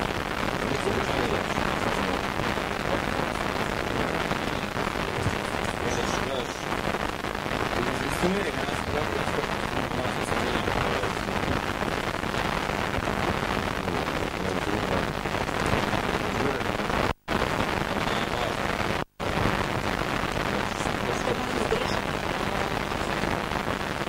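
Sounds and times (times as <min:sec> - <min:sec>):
videotape hiss: 0:00.0 - 0:24.0
faint low hum: 0:13.8 - 0:15.1.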